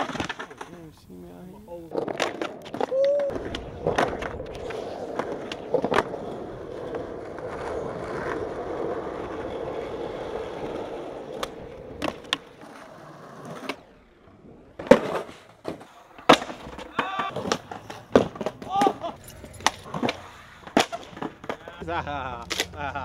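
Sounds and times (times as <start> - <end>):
skateboard clacks: 0.0 - 0.9, 1.9 - 13.9, 14.8 - 21.8
skateboard wheels rolling on asphalt: 0.0 - 23.0
skateboard pop and landing slap: 14.8 - 19.0, 19.6 - 21.6.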